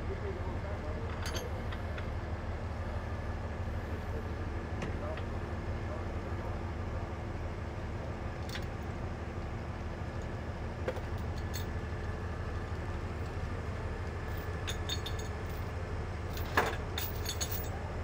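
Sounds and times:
truck engine running: 0:00.0 - 0:18.0
metallic clinks: 0:14.3 - 0:15.6, 0:16.4 - 0:17.8.

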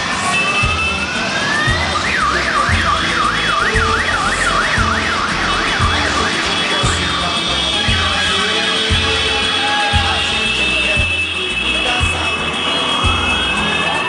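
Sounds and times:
siren wailing and yelping: 0:00.0 - 0:06.8.

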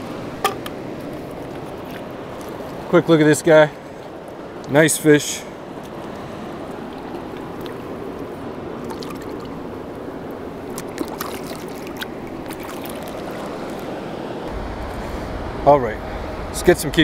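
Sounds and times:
small water splashes: 0:00.8 - 0:03.1, 0:05.7 - 0:14.4.

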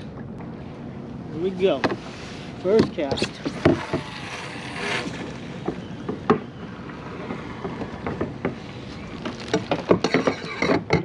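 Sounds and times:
hiss of water and wind: 0:00.0 - 0:11.0
knocks and handling noises: 0:07.3 - 0:11.0.

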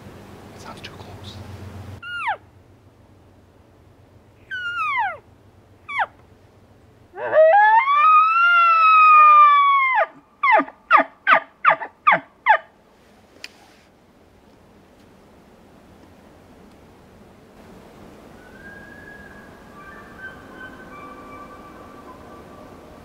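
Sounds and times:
bull elk bugle whistle: 0:18.3 - 0:23.0.

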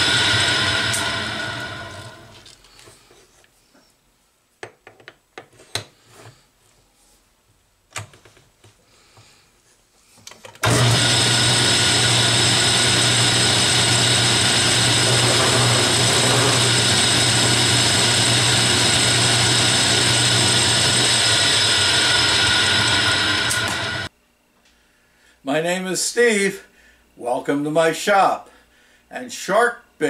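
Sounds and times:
metal lathe running: 0:00.0 - 0:02.4, 0:10.6 - 0:24.1.

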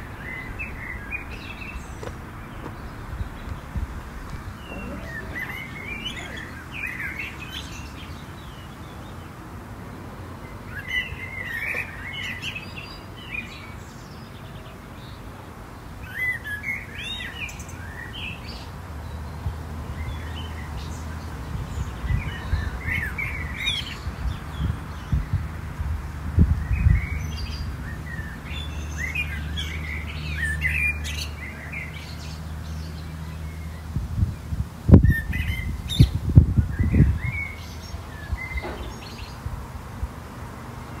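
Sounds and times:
songbird warbling: 0:00.0 - 0:08.6
low outdoor background noise: 0:00.0 - 0:41.0.

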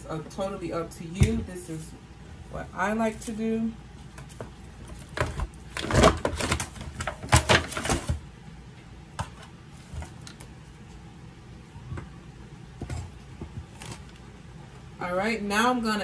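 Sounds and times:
aluminium foil pan crinkling: 0:04.2 - 0:08.2.

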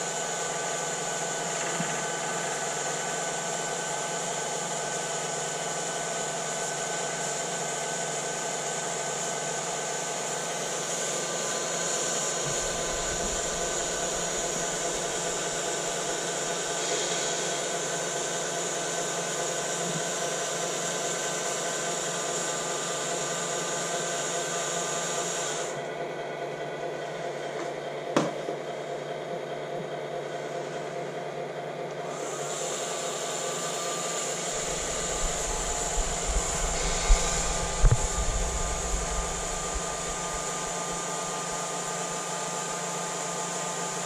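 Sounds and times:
mechanical whirring hum: 0:00.0 - 0:44.0
hiss: 0:10.3 - 0:25.8, 0:32.3 - 0:42.2.

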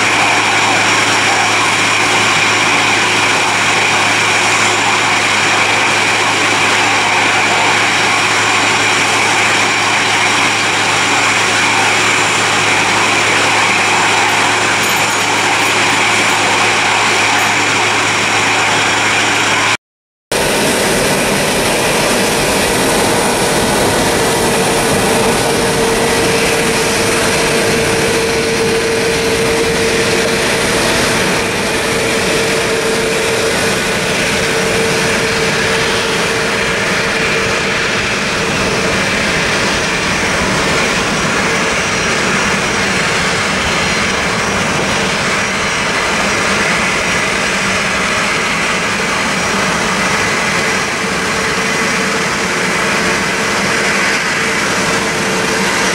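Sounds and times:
jet engines running: 0:00.0 - 0:55.9.

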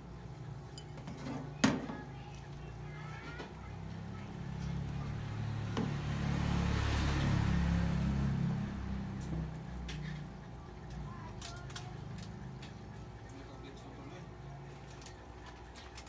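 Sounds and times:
vehicle passing: 0:03.6 - 0:10.8.

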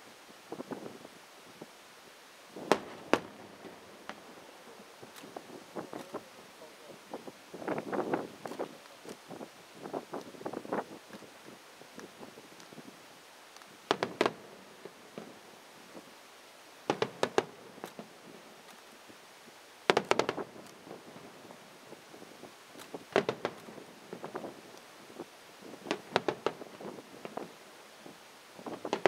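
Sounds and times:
firework volleys popping: 0:02.5 - 0:12.9, 0:13.5 - 0:16.1, 0:16.8 - 0:18.9, 0:19.9 - 0:29.0.

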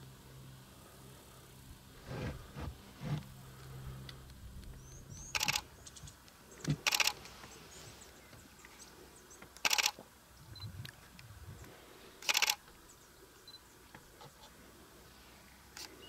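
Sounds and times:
low steady hum: 0:00.0 - 0:16.0
camera shutter clicks: 0:05.3 - 0:05.6, 0:06.7 - 0:07.2, 0:09.6 - 0:10.0, 0:12.2 - 0:12.6.

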